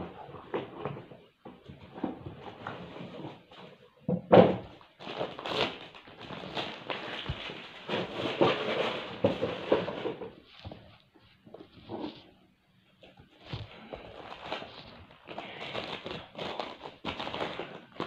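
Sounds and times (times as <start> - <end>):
wrapping paper rustling: 4.8 - 11.1, 13.3 - 18.0.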